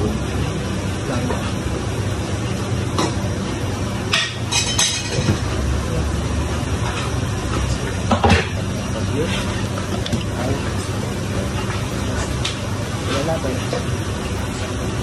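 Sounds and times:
kitchenware clinking: 4.1s - 5.5s, 6.9s - 10.2s.

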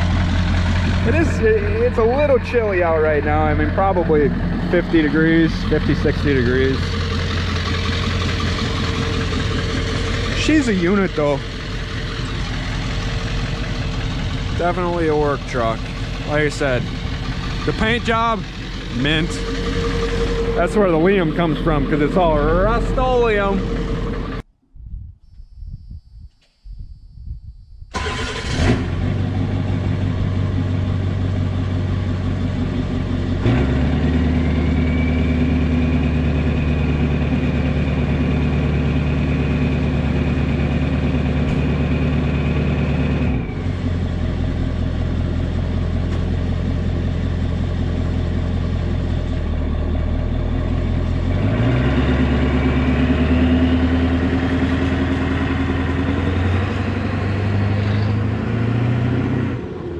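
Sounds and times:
diesel truck engine revving: 0.0s - 24.5s, 28.0s - 59.9s
turbo whistle: 19.0s - 22.4s.

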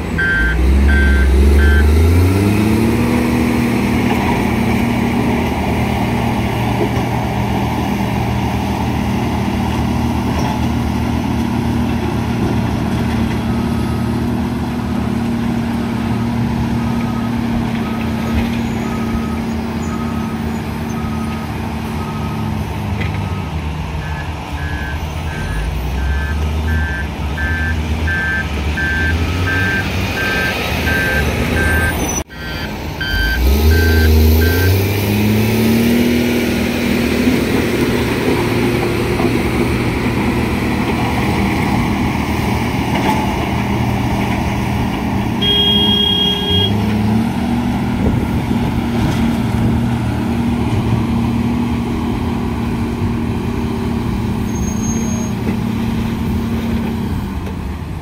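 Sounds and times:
engine revving: 0.0s - 6.8s, 24.0s - 54.5s
heavy diesel engines running: 0.0s - 58.0s
reversing alarm beeping: 0.2s - 2.1s, 23.2s - 34.8s, 45.4s - 46.8s
brief high tone: 45.4s - 46.8s.

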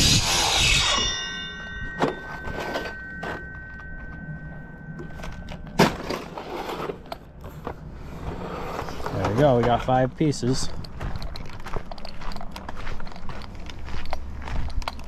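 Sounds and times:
faint high whine: 0.0s - 7.3s.

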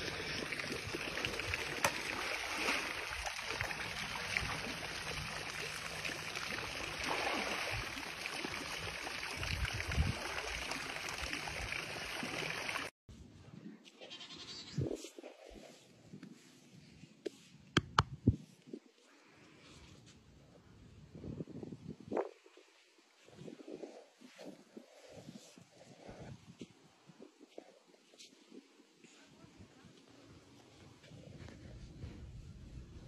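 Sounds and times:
pool fountain rushing: 0.0s - 12.9s
water splashing: 0.0s - 12.9s.

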